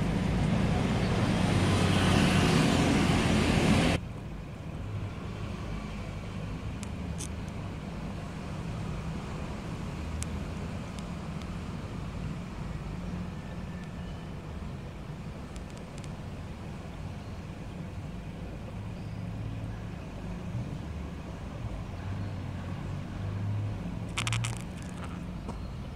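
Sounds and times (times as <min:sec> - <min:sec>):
loud rushing noise: 0:00.0 - 0:04.0.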